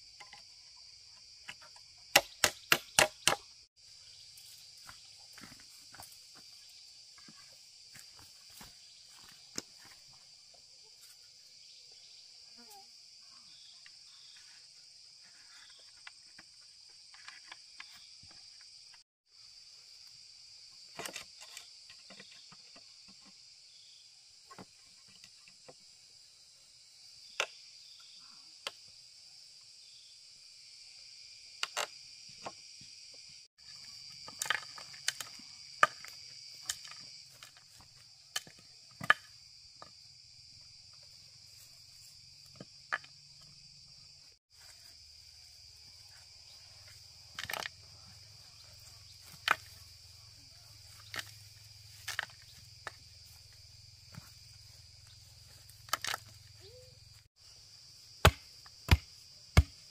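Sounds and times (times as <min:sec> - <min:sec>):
high insect chorus: 0:00.0 - 0:59.9.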